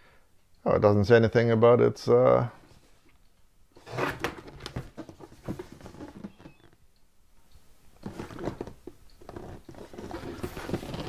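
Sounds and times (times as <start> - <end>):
cardboard box scraping and rustling: 9.4 - 11.0.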